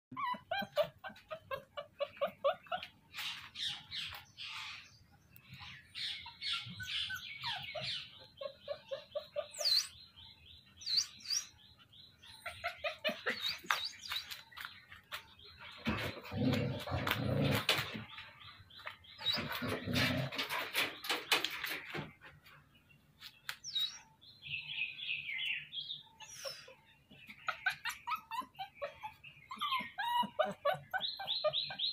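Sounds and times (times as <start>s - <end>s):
puppies yipping and whimpering: 0.1s - 4.8s, 5.6s - 10.0s, 12.1s - 17.9s, 26.2s - 31.9s
birds chirping: 0.1s - 31.9s.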